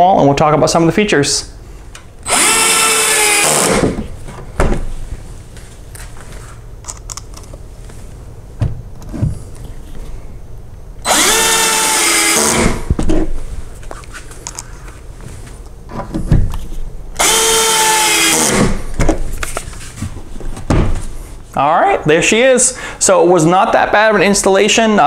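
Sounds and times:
cordless drill driving screws: 2.2 - 4.0, 11.1 - 12.9, 17.2 - 18.8.

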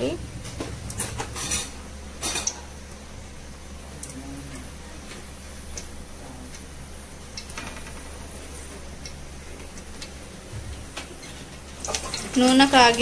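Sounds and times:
steady low hum: 0.0 - 13.0
oil crackling in pot: 5.0 - 13.0.

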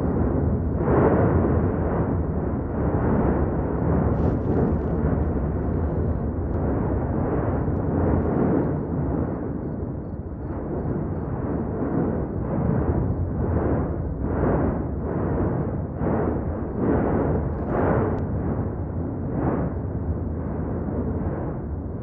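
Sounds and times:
volcanic vent rumbling: 0.0 - 22.0
short crackle: 4.1 - 6.5.

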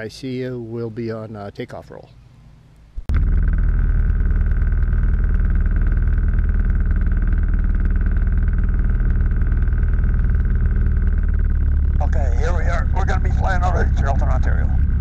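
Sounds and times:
aircraft engine running steadily: 3.0 - 15.0.

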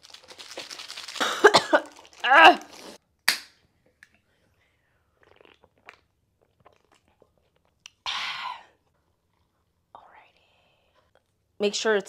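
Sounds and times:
can and packaging rustling: 0.0 - 3.0.

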